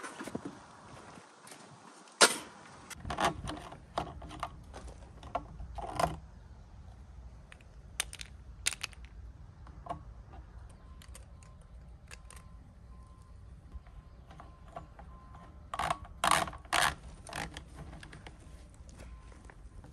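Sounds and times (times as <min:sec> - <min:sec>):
plastic and metal clicks and knocks: 0:03.0 - 0:06.3, 0:07.5 - 0:12.6, 0:13.7 - 0:18.4.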